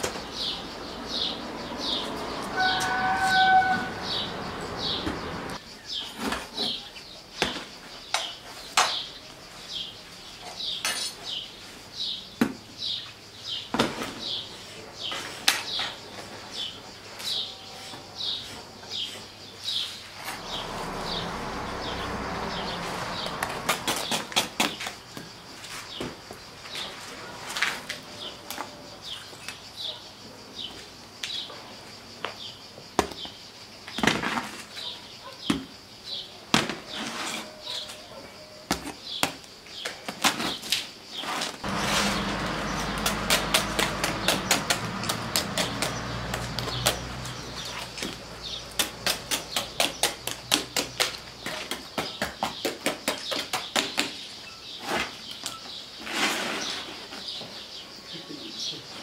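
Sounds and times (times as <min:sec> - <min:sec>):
birds chirping: 0:00.0 - 0:27.3, 0:41.6 - 0:56.0.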